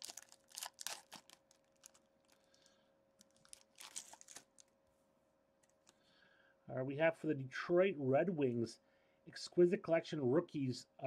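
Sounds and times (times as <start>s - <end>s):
foil wrapper crinkling: 0.0s - 4.7s.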